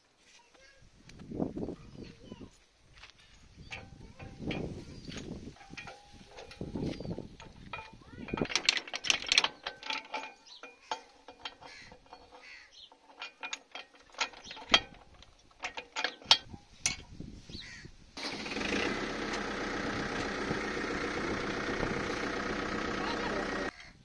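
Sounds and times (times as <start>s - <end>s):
metal clinks and knocks: 3.3s - 17.4s, 18.8s - 23.7s
tractor diesel engine running: 3.6s - 17.2s, 18.2s - 23.7s.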